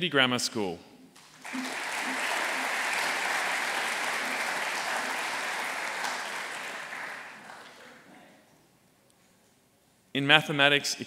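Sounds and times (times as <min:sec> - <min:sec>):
audience applauding: 0:01.2 - 0:08.1.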